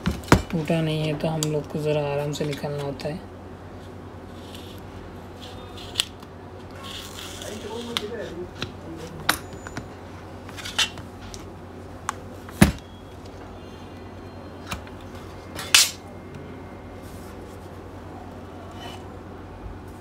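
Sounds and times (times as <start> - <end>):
tools clicking and knocking on mat: 0.0 - 0.6.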